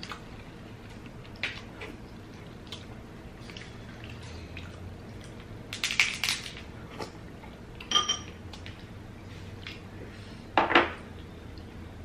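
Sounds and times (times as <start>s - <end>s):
spoons clinking on ceramic bowls: 7.9s - 8.4s.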